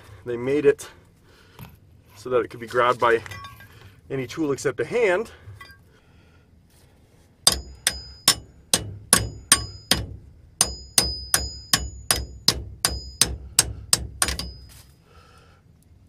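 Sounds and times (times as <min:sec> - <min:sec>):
metal tool clanking on valve: 0:07.5 - 0:08.5, 0:14.2 - 0:14.8.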